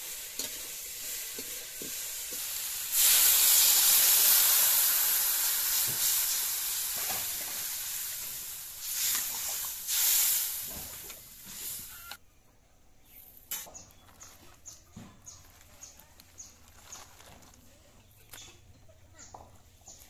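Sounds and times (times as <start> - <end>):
water sizzling in hot wok: 0.0 - 12.2
faint high chirps: 11.8 - 17.2.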